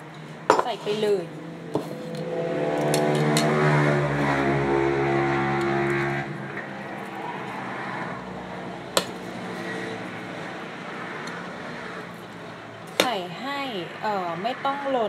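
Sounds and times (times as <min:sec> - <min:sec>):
motor hum with pitched tones: 0:01.6 - 0:06.8.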